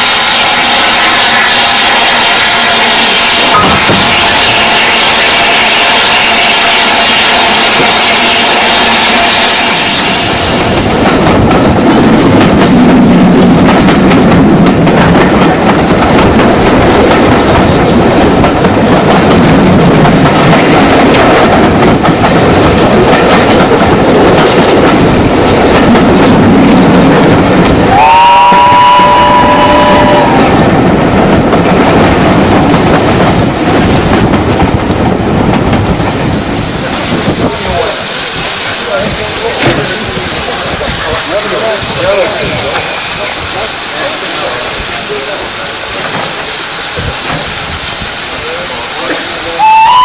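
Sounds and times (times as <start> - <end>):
steam locomotive working: 0.0 - 50.0
train rushing air and rail noise: 0.0 - 50.0
steam whistle chord: 27.9 - 30.4, 49.6 - 50.0.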